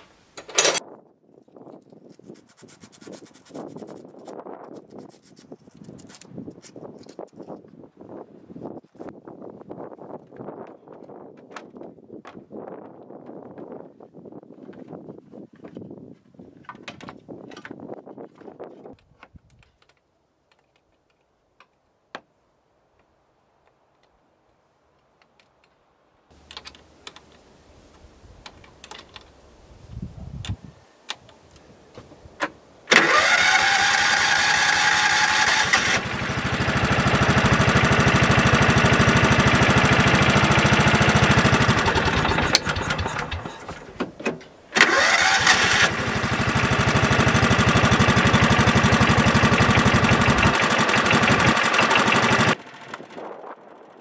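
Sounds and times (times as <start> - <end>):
small gasoline engine running: 32.9 - 43.9, 44.8 - 54.0.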